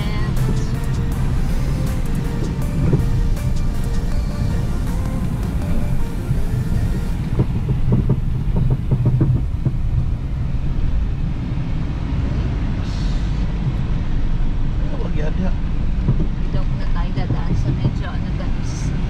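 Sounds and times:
vehicle engine and tyres rumbling: 0.0s - 19.0s
knocks and rattles: 7.2s - 9.9s.

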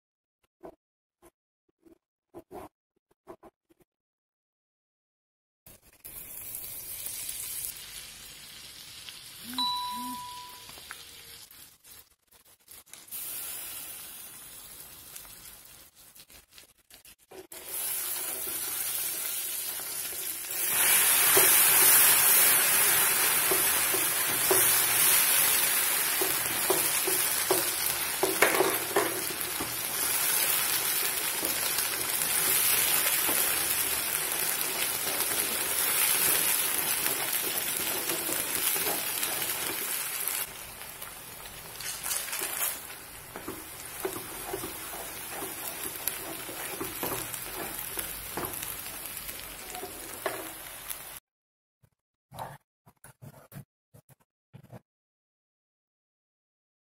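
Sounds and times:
caramel sizzling in a pan: 6.1s - 9.6s, 10.4s - 51.2s.

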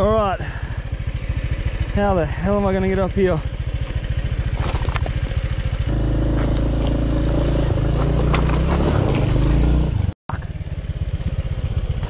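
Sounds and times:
motor scooter engine revving: 0.8s - 12.0s
knocks and clatters: 7.7s - 9.5s.

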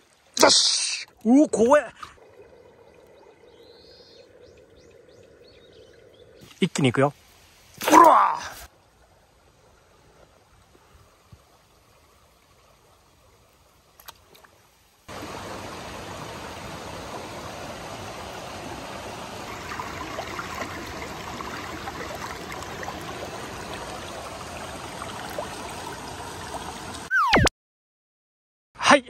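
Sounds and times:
stream water rushing: 6.6s - 27.1s.

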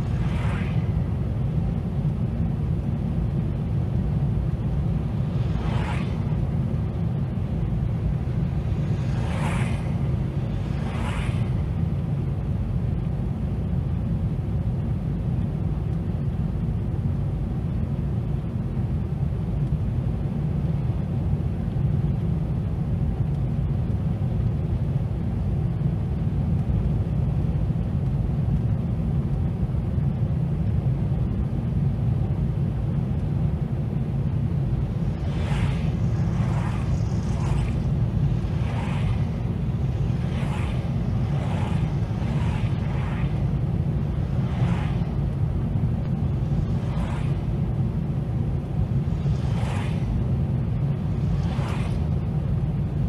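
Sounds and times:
passing vehicles whooshing: 0.0s - 13.2s, 33.6s - 53.0s
car road and engine rumble: 0.0s - 53.0s.

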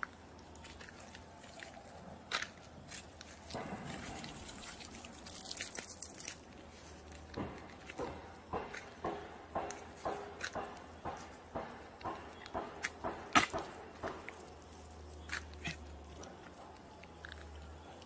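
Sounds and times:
footsteps on leafy dirt trail: 0.0s - 11.3s
dry leaves rustling: 3.0s - 7.0s.

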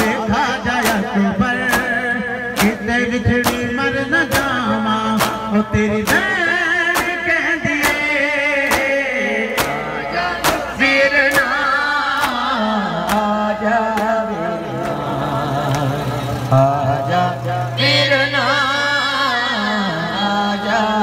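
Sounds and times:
crowd slapping chests: 0.0s - 16.5s
man singing a lament: 0.0s - 21.0s.

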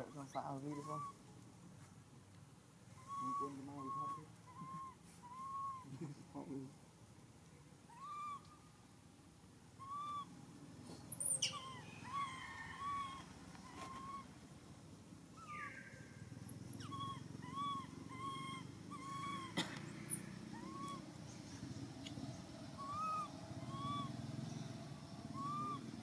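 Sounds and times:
infant monkey coo calls: 0.6s - 1.2s, 2.9s - 6.3s, 7.8s - 8.6s, 9.8s - 10.4s, 11.0s - 14.4s, 15.3s - 26.0s
monkey squeals: 3.0s - 5.8s, 7.9s - 8.4s, 9.8s - 10.3s, 11.2s - 14.3s, 16.7s - 19.6s, 20.5s - 21.0s, 22.8s - 24.1s, 25.4s - 25.9s.

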